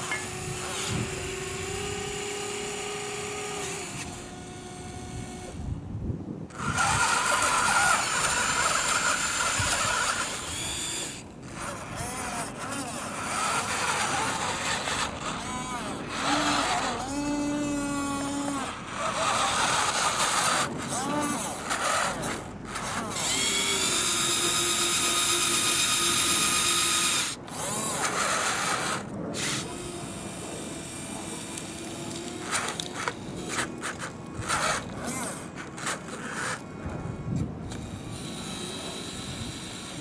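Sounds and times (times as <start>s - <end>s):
small electric motors whining: 0.0s - 5.8s, 6.5s - 40.0s
toy loader driving into gravel: 6.5s - 40.0s.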